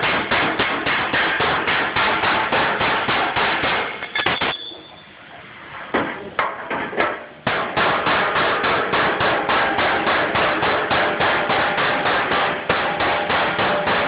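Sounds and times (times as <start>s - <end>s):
hammer striking steel: 0.0s - 5.0s, 7.5s - 14.0s.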